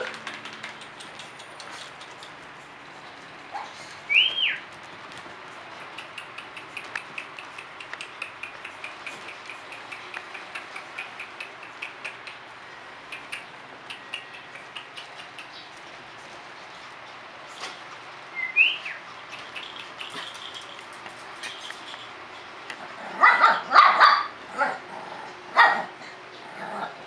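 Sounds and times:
puppies squeaking and yipping: 3.4s - 4.7s, 18.4s - 22.6s.

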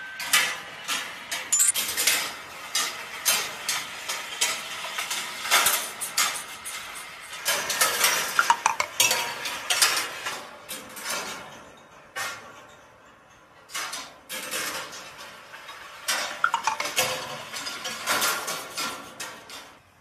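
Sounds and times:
short ringing tones: 1.6s - 1.8s, 16.3s - 17.1s
balls clattering on metal wire: 1.6s - 10.1s.

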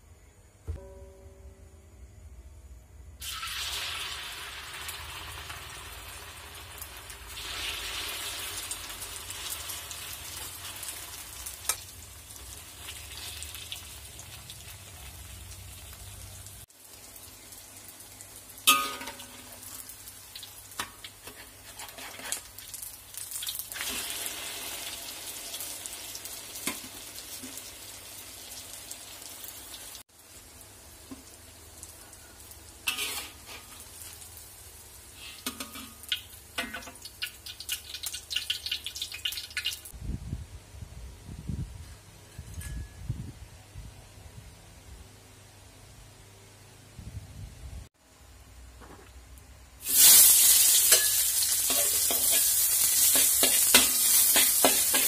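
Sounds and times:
sharp ringing knock: 0.6s - 1.9s
noodles sizzling in hot oil: 3.2s - 39.9s, 49.8s - 55.0s
scrapes and clicks in wok: 20.8s - 22.5s, 32.9s - 34.2s, 49.9s - 55.0s.

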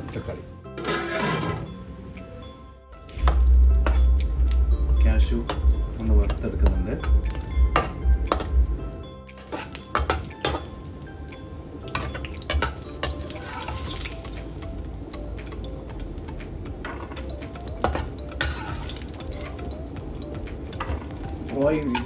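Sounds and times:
metal skimmer scraping a pan: 0.8s - 1.8s, 9.4s - 10.7s, 11.9s - 14.2s, 17.8s - 19.6s
frying sizzle: 3.0s - 22.0s.

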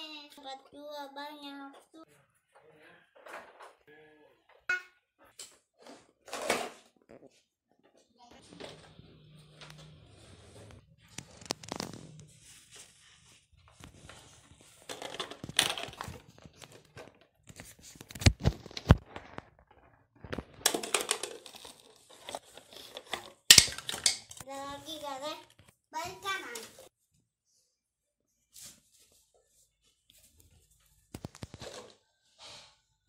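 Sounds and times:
plastic toys rustling and scraping: 3.1s - 3.8s, 5.4s - 7.1s, 7.8s - 26.9s, 30.2s - 32.7s.

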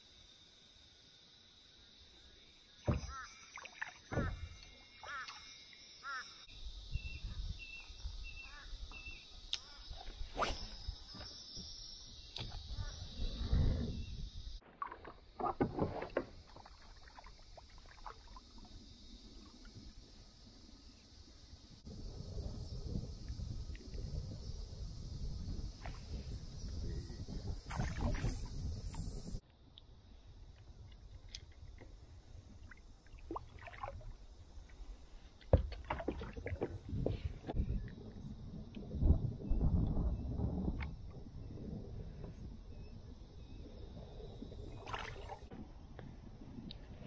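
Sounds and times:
water splashing: 14.6s - 18.7s, 27.7s - 28.5s, 32.6s - 34.2s, 35.5s - 37.2s, 44.6s - 45.5s.

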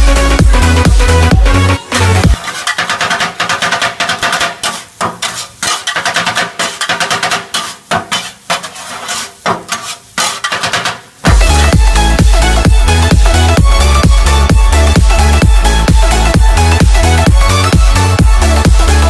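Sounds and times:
electronic dance music: 0.0s - 2.5s, 10.7s - 19.0s
steel blades clattering on a griddle: 2.4s - 11.1s.

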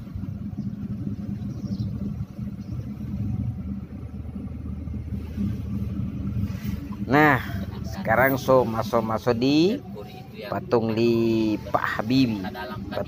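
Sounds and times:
car engine hum and road rumble: 0.0s - 13.0s.

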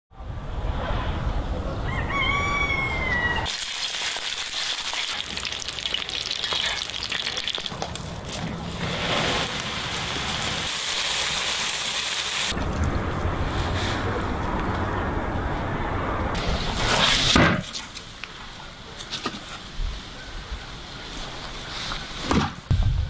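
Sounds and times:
food sizzling and crackling in a pan: 3.5s - 8.0s, 9.0s - 12.5s.

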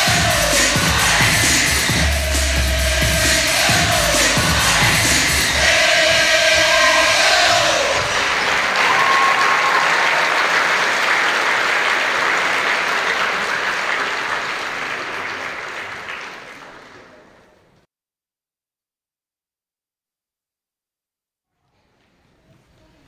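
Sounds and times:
audience applauding: 6.6s - 17.5s.

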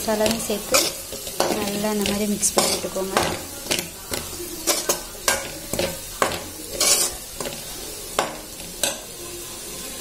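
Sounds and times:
frying sizzle: 0.0s - 10.0s
metal spoon scraping a pan: 0.0s - 10.0s.

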